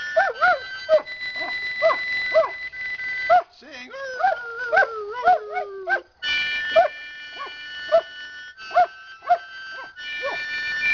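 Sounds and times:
harmonica chords: 0.0s - 10.9s
dog howling: 0.2s - 2.6s, 3.3s - 6.1s, 6.7s - 8.1s, 8.7s - 10.4s.

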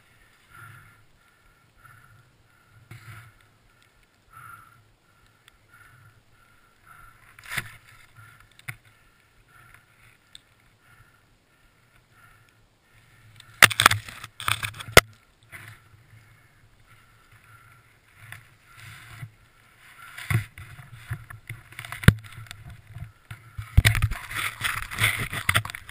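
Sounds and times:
branches and snow rustling: 0.0s - 11.2s, 12.8s - 25.9s
branches cracking: 7.2s - 9.0s, 13.4s - 15.8s, 19.9s - 25.9s.

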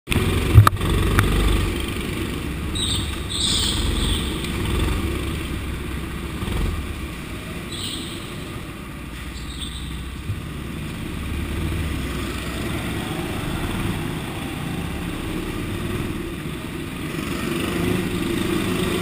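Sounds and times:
go-kart engine running: 0.1s - 19.0s
tyres squealing on concrete: 2.7s - 4.5s, 7.6s - 8.4s, 9.2s - 10.1s.

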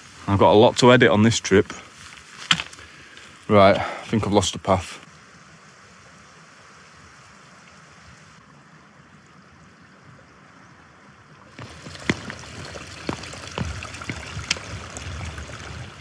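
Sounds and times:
open-air noise: 0.0s - 16.0s
footsteps on stony path: 1.6s - 3.9s, 11.6s - 16.0s
distant rushing water: 3.5s - 16.0s.

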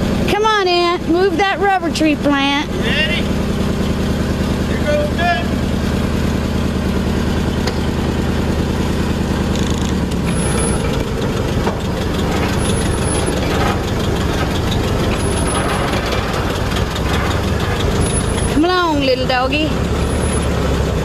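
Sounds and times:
truck engine under load: 0.0s - 21.0s
high squeaks: 9.4s - 20.7s.

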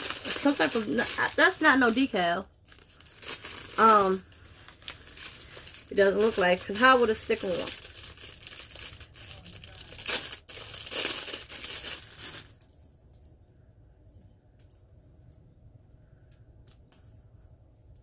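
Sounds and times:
plastic packaging crinkling and tearing: 0.0s - 12.7s.

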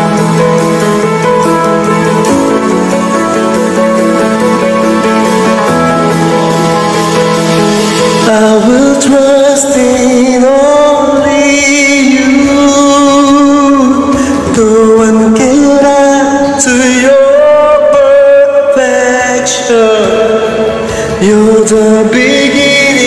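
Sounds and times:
man singing slow song: 8.0s - 23.0s.

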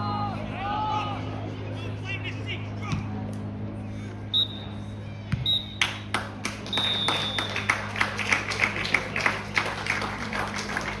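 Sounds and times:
referee's whistle: 4.3s - 4.7s, 5.4s - 5.8s, 6.7s - 7.7s
group clapping in rhythm: 5.8s - 11.0s.

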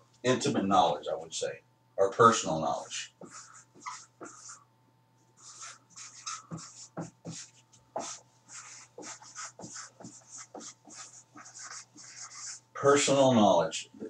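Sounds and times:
pen scratching strokes: 3.2s - 4.6s, 5.4s - 12.6s.

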